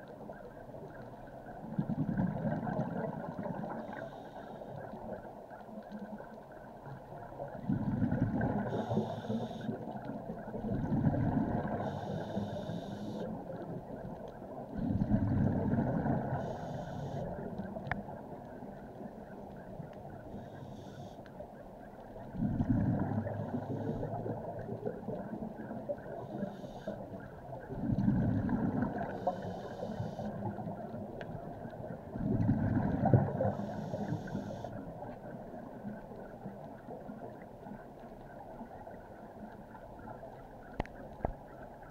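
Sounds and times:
exhaled bubbles rumbling underwater: 0.0s - 41.9s
steady hiss: 3.7s - 5.4s, 8.6s - 9.9s, 11.6s - 13.4s, 16.1s - 17.5s, 20.1s - 21.4s, 25.6s - 27.2s, 29.0s - 30.5s, 33.2s - 35.2s
hissing regulator breaths: 8.7s - 9.7s, 11.8s - 13.3s, 16.4s - 17.3s, 20.3s - 21.2s, 29.1s - 30.3s, 33.4s - 34.7s.

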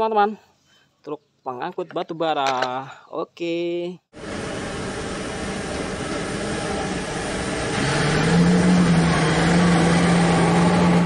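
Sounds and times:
haul truck diesel engine droning: 4.2s - 11.0s.

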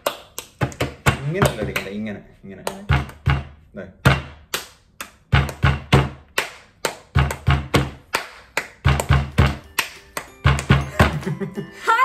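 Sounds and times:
hand drumming on hard surface: 5.2s - 11.3s.

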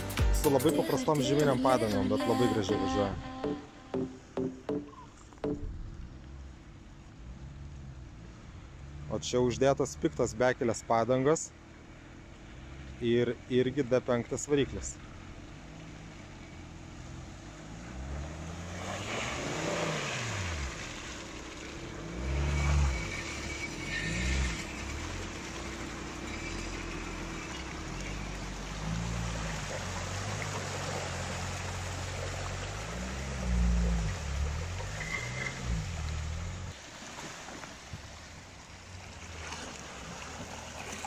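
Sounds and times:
diesel engine revving: 1.5s - 36.8s
tyres splashing through muddy water: 11.6s - 41.0s.

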